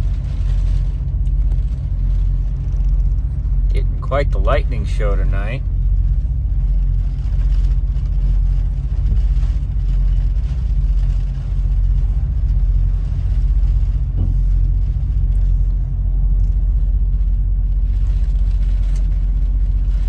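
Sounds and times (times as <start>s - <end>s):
diesel truck engine idling: 0.0s - 20.0s.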